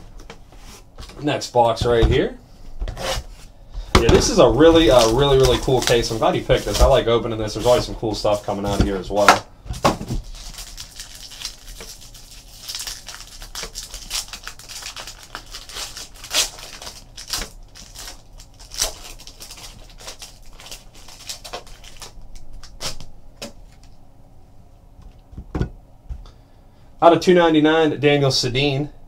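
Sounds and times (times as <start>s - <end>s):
foil wrapper crinkling and tearing: 4.2s - 24.0s.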